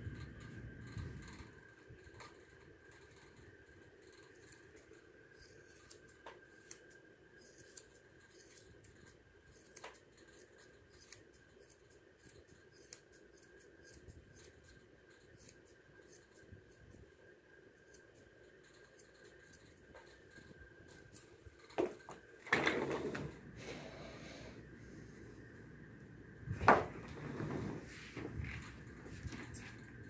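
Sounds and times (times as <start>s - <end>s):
shears snipping hair: 4.2s - 17.0s, 17.8s - 20.3s, 20.9s - 21.4s.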